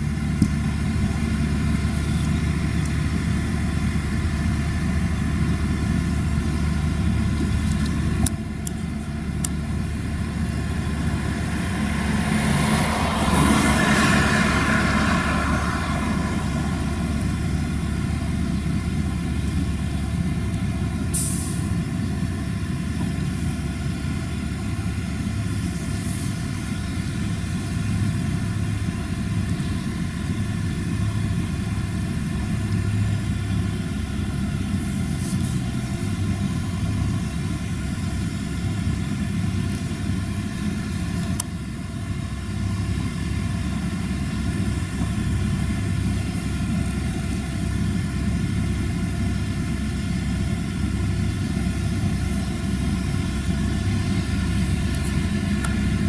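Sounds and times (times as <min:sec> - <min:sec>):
tractor diesel engine under load: 0:00.0 - 0:56.0
short hiss: 0:21.1 - 0:21.8.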